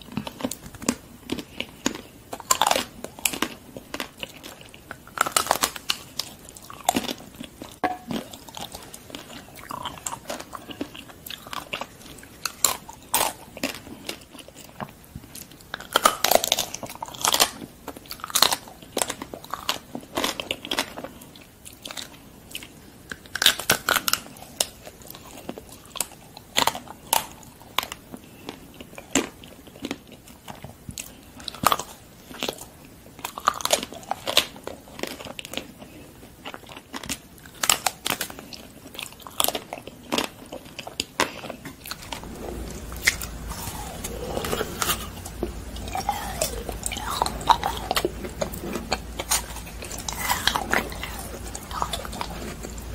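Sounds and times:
chocolate coating crunching: 0:00.0 - 0:52.9
soft chewing: 0:00.0 - 0:52.9
low hum: 0:41.8 - 0:52.9.

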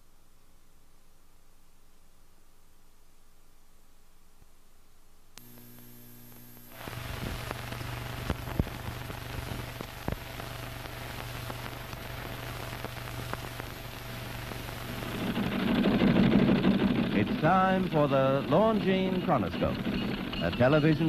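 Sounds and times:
steady hum: 0:00.0 - 0:21.0
film soundtrack crackle and pops: 0:05.3 - 0:21.0
click: 0:05.4 - 0:06.7.

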